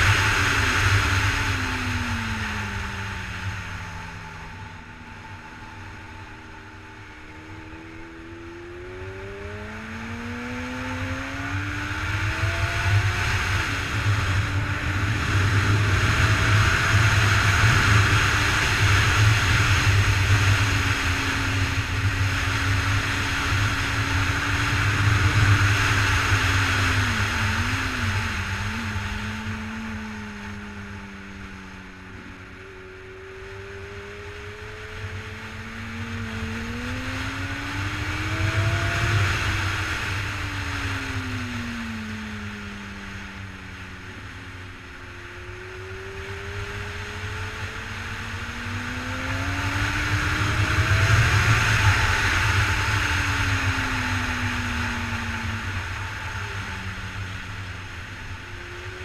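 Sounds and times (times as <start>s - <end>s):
motorcycle engine accelerating: 0.0s - 59.0s
wind rush over microphone: 10.5s - 31.6s, 33.3s - 43.6s, 45.6s - 59.0s.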